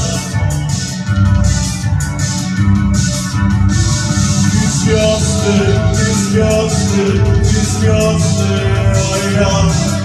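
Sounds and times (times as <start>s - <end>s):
driving drum beat: 0.0s - 10.0s
live rock band playing: 0.0s - 10.0s.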